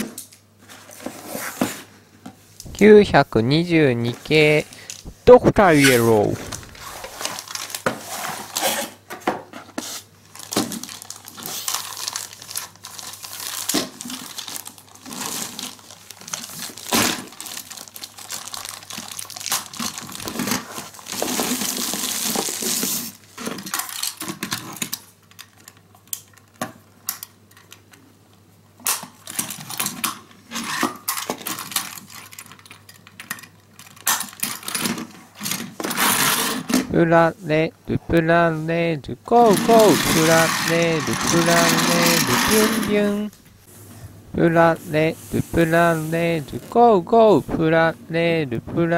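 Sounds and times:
packaging crinkling and rustling: 5.9s - 9.0s, 10.2s - 26.6s, 29.0s - 36.9s.

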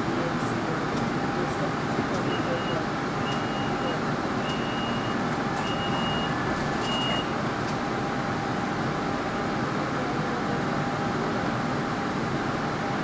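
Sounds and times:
train interior hum and rumble: 0.0s - 13.0s
short high door warning beeps: 2.3s - 7.4s.

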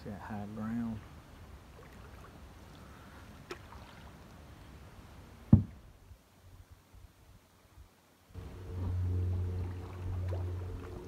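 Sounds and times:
paddle swishing in water: 1.0s - 4.9s, 8.4s - 11.0s
loud hollow knock: 5.5s - 5.8s.

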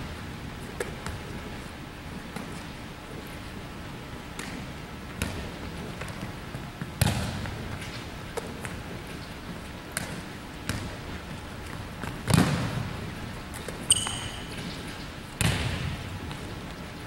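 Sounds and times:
volleyball hits echoing: 6.9s - 7.6s, 12.0s - 13.0s, 13.6s - 16.5s
high squeak: 13.9s - 14.5s.

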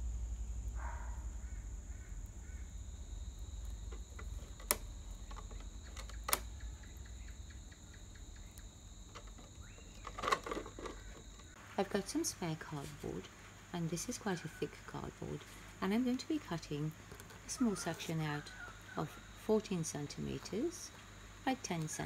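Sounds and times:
steady low hum: 0.0s - 22.0s
plastic crackling: 3.4s - 6.6s, 9.0s - 11.6s
sharp clicks: 3.6s - 11.6s.

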